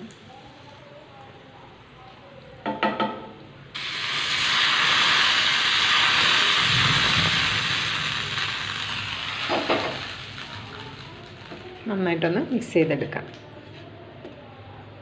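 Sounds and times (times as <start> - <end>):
hot ghee sizzling: 3.7 - 12.1.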